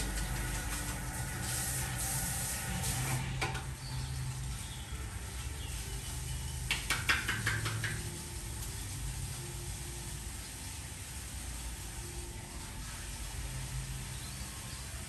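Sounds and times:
hands clapping in massage: 0:06.6 - 0:08.2.

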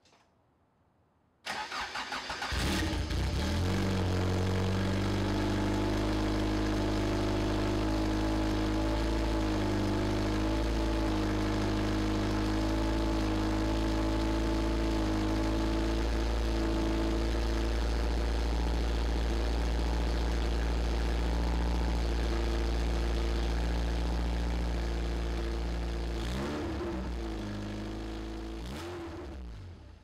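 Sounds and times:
engine starter cranking: 0:01.5 - 0:03.1
car engine idling: 0:01.7 - 0:28.7.

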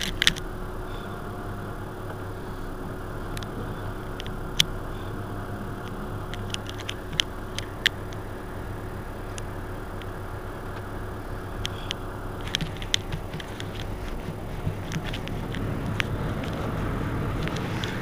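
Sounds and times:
diesel bus engine idling: 0:00.0 - 0:18.0
sharp clicks: 0:05.7 - 0:08.3, 0:11.5 - 0:18.0.

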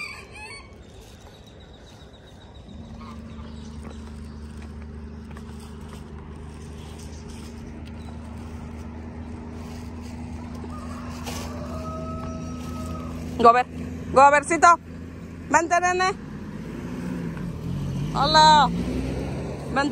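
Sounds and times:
low mechanical hum: 0:00.0 - 0:15.5.

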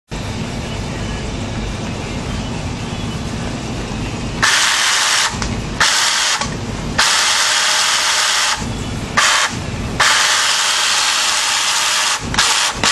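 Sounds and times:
chainsaw chain whirring hiss: 0:09.2 - 0:12.9
chainsaw humming: 0:09.2 - 0:12.9.

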